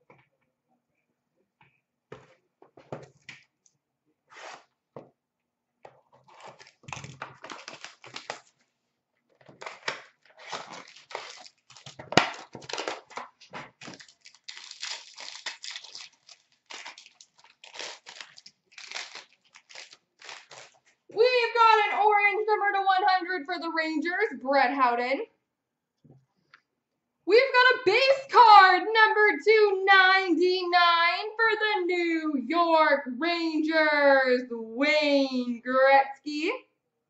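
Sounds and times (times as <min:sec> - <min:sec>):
wrappers tearing and crinkling: 0:06.2 - 0:08.7, 0:09.5 - 0:21.0.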